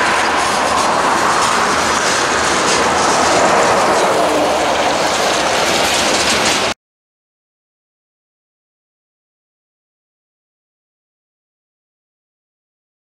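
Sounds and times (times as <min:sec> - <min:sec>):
wheel clicks clattering: 0:00.0 - 0:06.7
train wheels rumbling on rail: 0:00.0 - 0:06.8.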